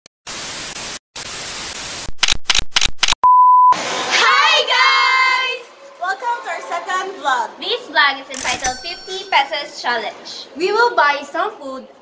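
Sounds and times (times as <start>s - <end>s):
static hiss: 0.3s - 2.1s
short static bursts: 0.3s - 3.2s
young women screaming and cheering: 4.0s - 5.7s.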